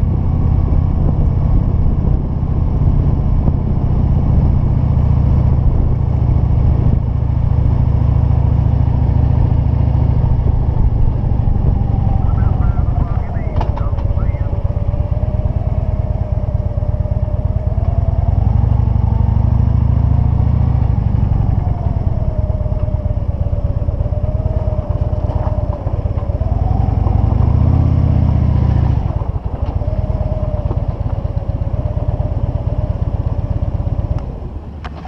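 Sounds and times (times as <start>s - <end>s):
motorcycle engine revving: 0.0s - 35.0s.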